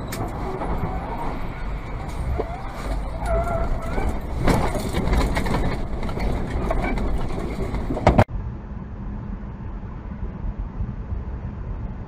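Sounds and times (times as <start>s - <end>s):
truck cab driving rumble: 0.0s - 8.6s
car road noise: 0.0s - 12.0s.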